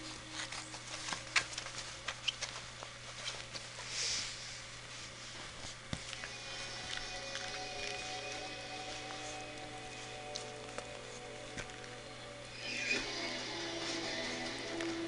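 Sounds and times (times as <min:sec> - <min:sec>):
faint background music: 0:00.0 - 0:15.0
puppy snuffle: 0:01.7 - 0:11.8.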